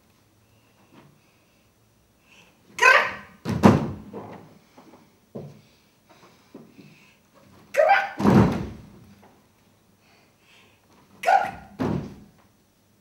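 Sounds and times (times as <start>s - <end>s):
heavy thuds on wooden stage: 3.4s - 4.2s, 8.2s - 9.0s, 11.7s - 12.2s.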